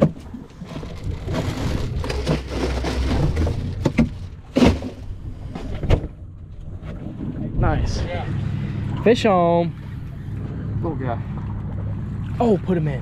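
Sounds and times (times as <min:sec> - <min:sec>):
ice crunching: 0:00.6 - 0:05.1.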